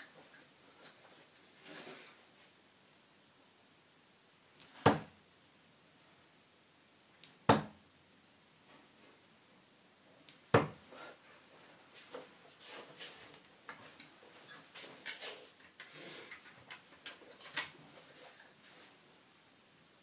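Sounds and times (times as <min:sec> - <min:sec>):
darts thudding into dartboard: 0:04.6 - 0:05.2, 0:07.2 - 0:07.8, 0:10.4 - 0:10.8.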